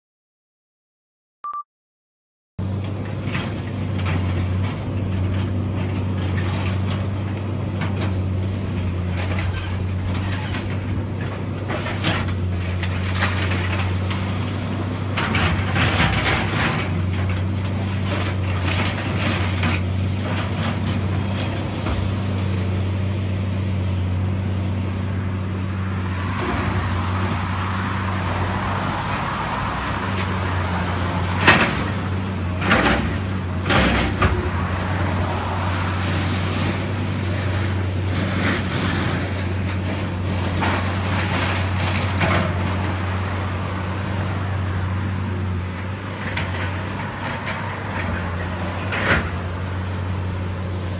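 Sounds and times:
diesel engine humming: 2.6s - 50.9s
rushing noise: 24.8s - 32.5s.

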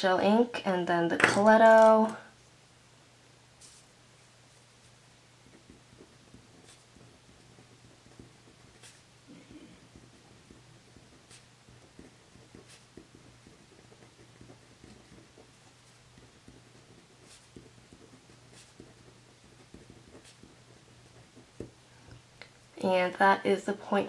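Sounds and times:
pen scratching on paper: 4.5s - 21.8s.

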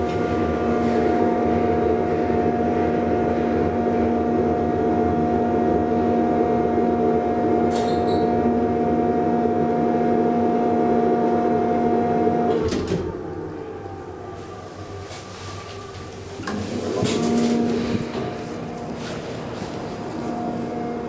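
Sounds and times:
hydraulic elevator humming: 10.2s - 21.0s.

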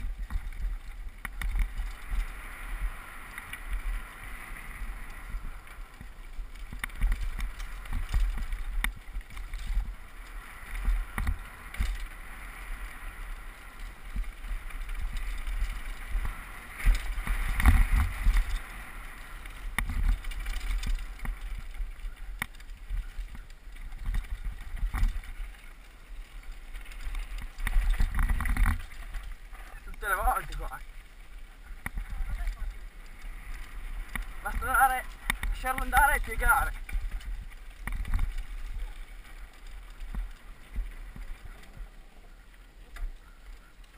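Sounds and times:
bike rattling and knocking: 0.0s - 4.2s, 4.8s - 42.0s
bike tyres on dirt: 0.0s - 43.9s
wind rumbling on microphone: 0.0s - 43.9s.

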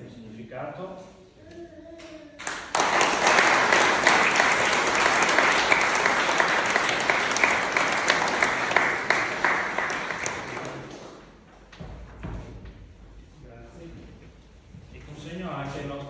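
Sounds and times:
audience applauding: 2.4s - 11.3s.

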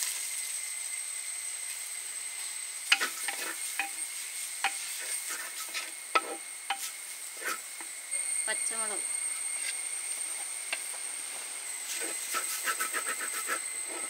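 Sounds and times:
onion sizzling in hot oil: 0.0s - 14.0s
wooden spatula scraping pot: 2.9s - 3.9s, 4.6s - 6.8s.

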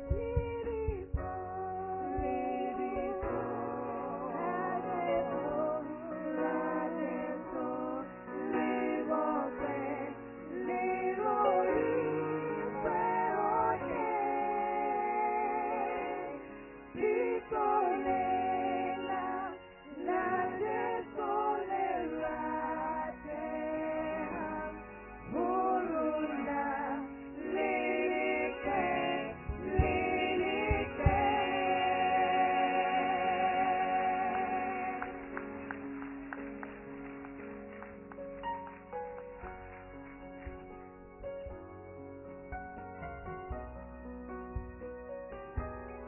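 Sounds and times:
low thumps: 0.0s - 4.1s, 28.6s - 32.4s, 40.4s - 46.0s
women singing in harmony: 0.0s - 35.2s.

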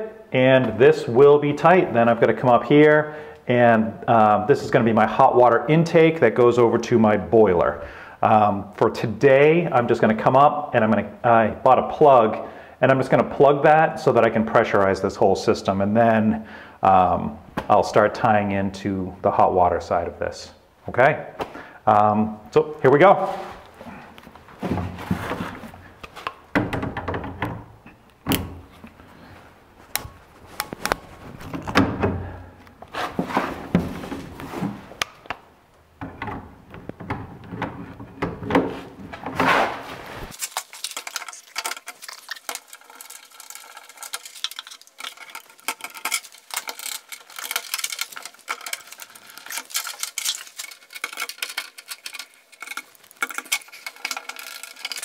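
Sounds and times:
pipes knocking and clicking: 23.6s - 29.0s, 36.0s - 39.6s, 40.4s - 55.0s.

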